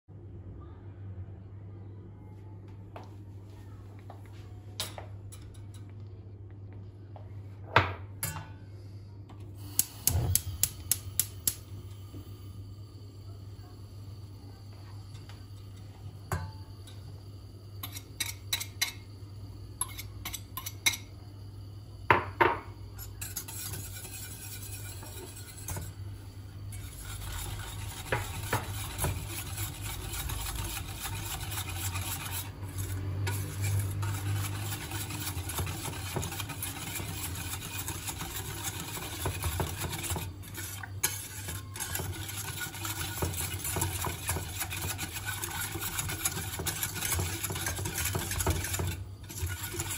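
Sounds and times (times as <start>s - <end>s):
whisk scraping a metal pot: 14.5s - 21.1s, 22.1s - 49.9s.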